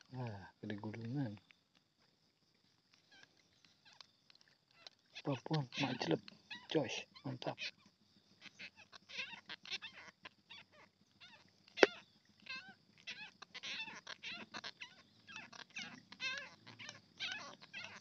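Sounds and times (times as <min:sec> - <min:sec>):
animal chirps and trills: 0:02.3 - 0:18.0.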